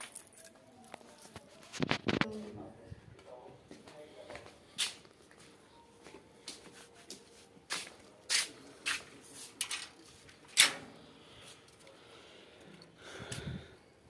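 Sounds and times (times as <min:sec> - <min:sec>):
metal gate latch clanking: 0:10.6 - 0:11.0.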